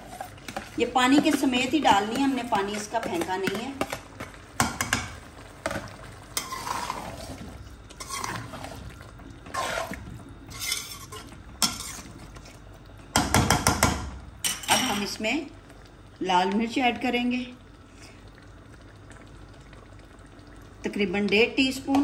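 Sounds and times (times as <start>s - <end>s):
spoon swishing through liquid: 0.0s - 4.0s, 6.3s - 12.6s
liquid pouring into a pot: 0.0s - 22.0s.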